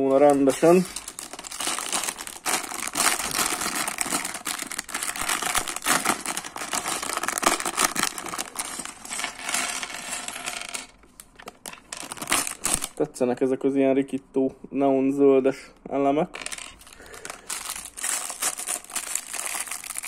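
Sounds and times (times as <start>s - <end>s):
plastic bag crinkling: 0.0s - 10.0s, 11.5s - 13.0s, 16.7s - 20.0s.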